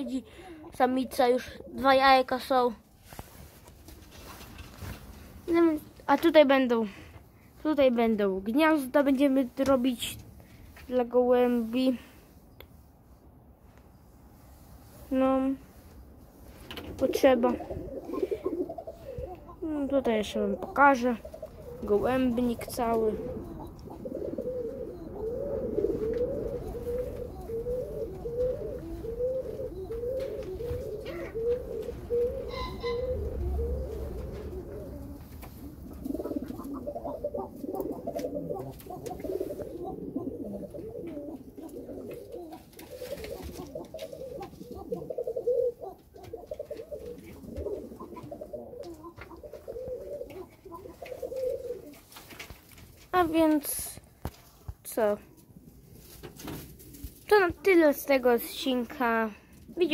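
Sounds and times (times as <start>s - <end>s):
pigeons cooing: 16.9s - 52.2s.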